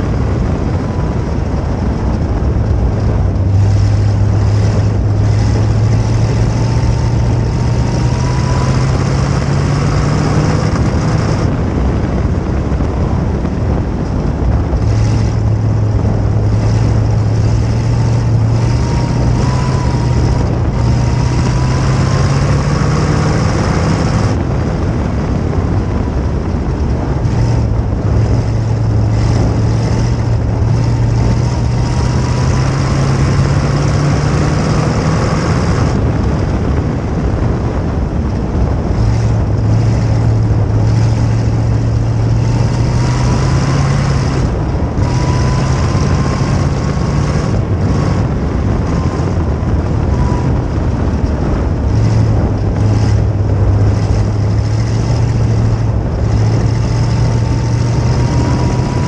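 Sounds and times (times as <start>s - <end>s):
race car engine at high throttle: 0.0s - 59.0s.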